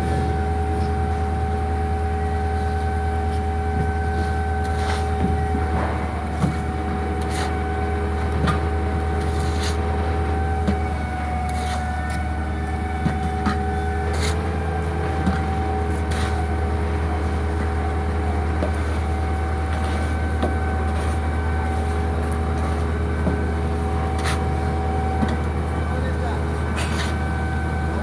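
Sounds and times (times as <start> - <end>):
construction machinery humming: 0.0 - 28.0
shovel scraping mortar: 4.2 - 5.1, 7.2 - 7.6, 9.2 - 9.9, 11.5 - 11.9, 13.5 - 14.4, 15.9 - 16.4, 24.2 - 24.4.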